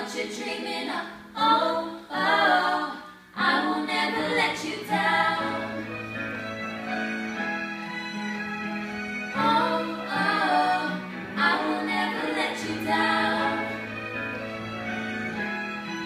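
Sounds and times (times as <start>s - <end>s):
women singing in harmony: 0.0s - 6.0s, 9.4s - 14.0s.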